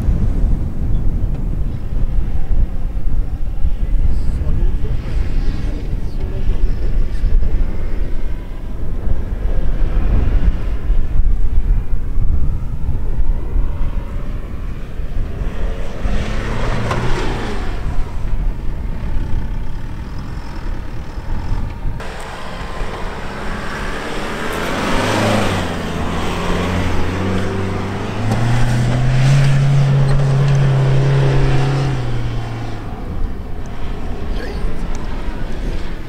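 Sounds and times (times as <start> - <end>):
diesel engine revving hard: 15.4 - 35.5.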